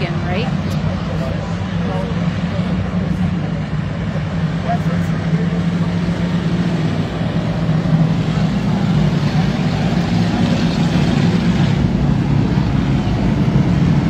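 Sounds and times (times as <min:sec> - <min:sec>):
racing car engines droning: 0:00.0 - 0:14.0.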